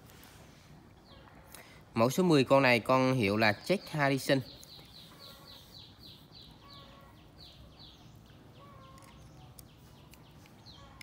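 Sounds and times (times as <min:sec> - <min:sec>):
bird chirping: 0:02.7 - 0:11.0.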